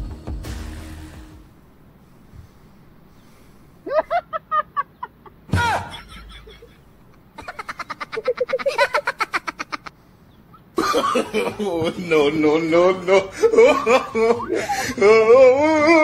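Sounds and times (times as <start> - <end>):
rapid laughing: 3.8 - 10.0, 10.6 - 16.0.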